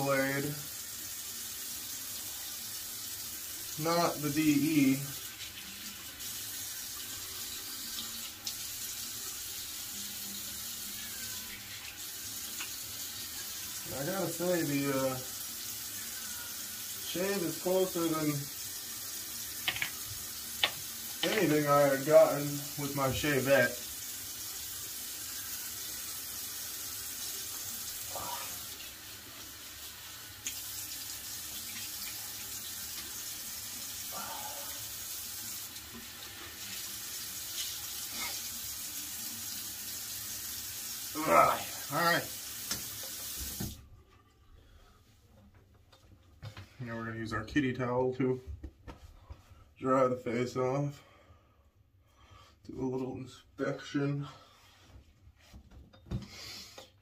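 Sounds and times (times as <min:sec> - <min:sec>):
tap water pouring into sink: 0:00.0 - 0:43.8
tap running into sink: 0:19.6 - 0:21.6, 0:42.6 - 0:43.8.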